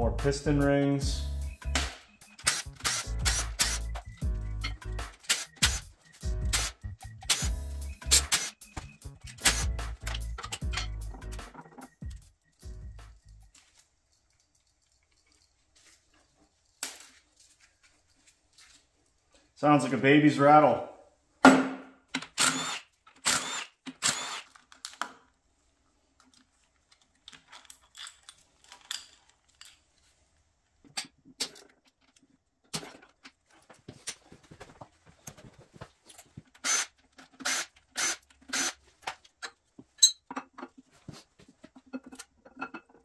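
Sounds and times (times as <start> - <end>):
metal parts clinking: 9.3 - 12.0, 27.2 - 29.9.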